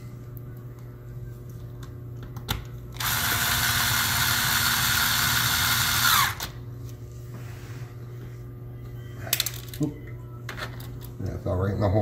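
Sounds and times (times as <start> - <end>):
electric screwdriver running: 3.0 - 6.6.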